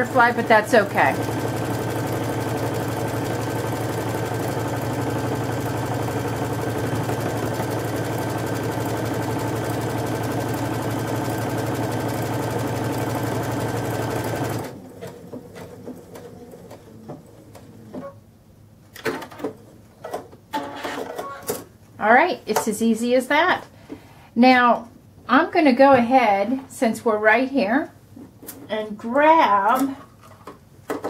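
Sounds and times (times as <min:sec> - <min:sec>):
sewing machine running: 0:00.0 - 0:16.9.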